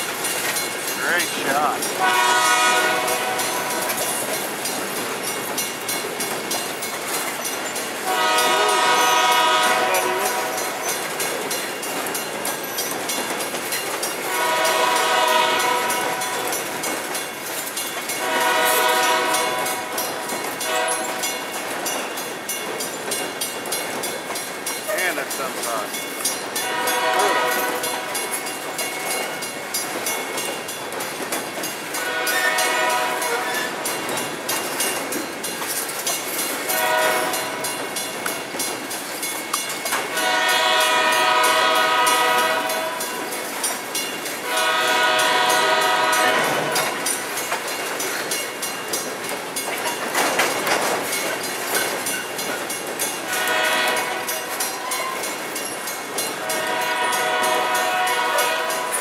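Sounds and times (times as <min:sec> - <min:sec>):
train wheels clacking on rails: 0:00.0 - 0:59.0
train air horn blasts: 0:02.0 - 0:04.0, 0:08.0 - 0:10.7, 0:14.3 - 0:16.5, 0:18.2 - 0:20.0, 0:20.6 - 0:21.2, 0:26.6 - 0:28.1, 0:32.0 - 0:33.7, 0:36.8 - 0:37.6, 0:40.1 - 0:43.1, 0:44.4 - 0:47.0, 0:53.3 - 0:55.2, 0:56.4 - 0:59.0.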